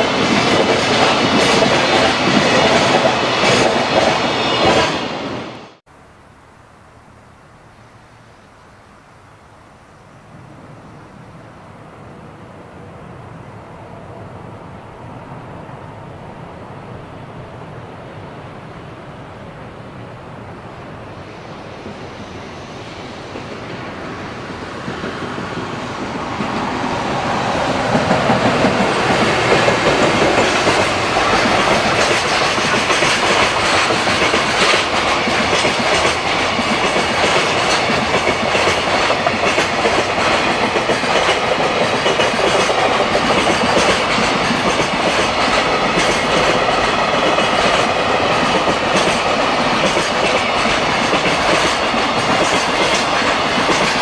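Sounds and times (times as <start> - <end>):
freight train rumbling past: 0.0 - 6.2, 7.0 - 54.0
wheels clacking over rail joints: 24.8 - 54.0.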